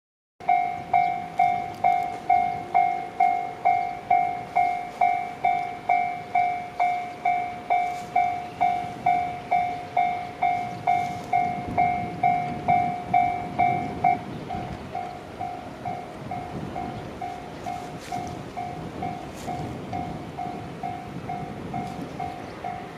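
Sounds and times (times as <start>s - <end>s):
level crossing warning bell: 0.4s - 22.9s.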